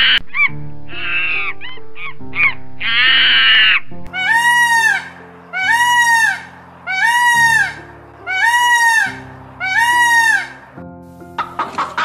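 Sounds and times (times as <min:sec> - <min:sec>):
background music: 0:00.0 - 0:12.0
peacock calling: 0:01.0 - 0:10.8, 0:11.4 - 0:12.0
monkey call: 0:03.0 - 0:10.6.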